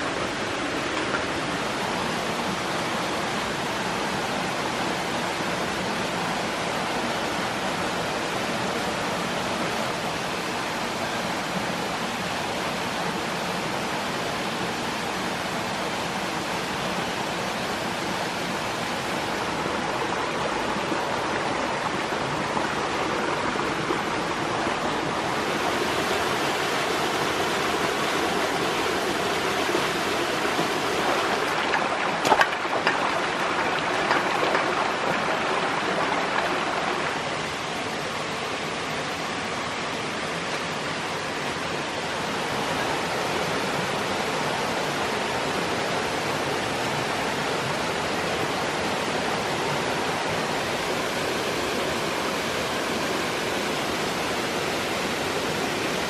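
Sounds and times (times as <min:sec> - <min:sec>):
stream and small waterfall rushing: 0:00.0 - 0:56.0.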